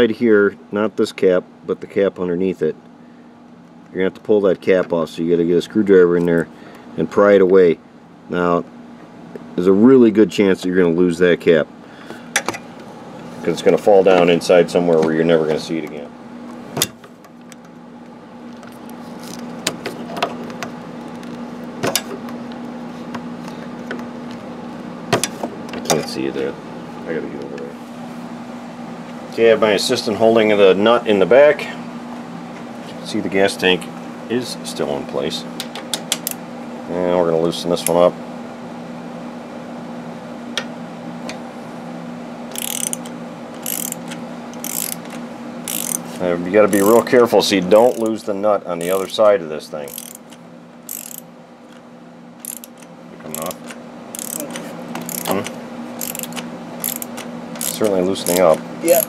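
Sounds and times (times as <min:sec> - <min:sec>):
steady low hum: 0:00.0 - 0:59.0
socket ratchet clicking: 0:42.5 - 0:46.0, 0:46.7 - 0:47.1, 0:47.8 - 0:48.1, 0:49.9 - 0:51.3, 0:52.4 - 0:59.0
screwdriver scraping against metal: 0:42.5 - 0:47.1, 0:47.7 - 0:48.1, 0:48.8 - 0:49.1, 0:49.9 - 0:50.3, 0:50.9 - 0:51.2, 0:52.4 - 0:53.6, 0:54.2 - 0:59.0.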